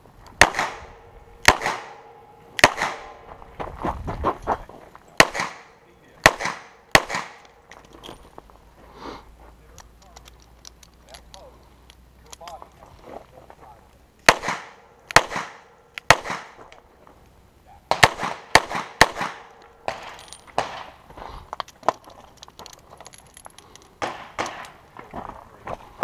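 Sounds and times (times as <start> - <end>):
pistol shots with echo: 0.4 - 3.2, 5.2 - 7.5, 14.2 - 16.6, 17.9 - 21.0, 24.0 - 24.8
soft knocks and shuffling: 3.2 - 5.1, 7.7 - 14.0.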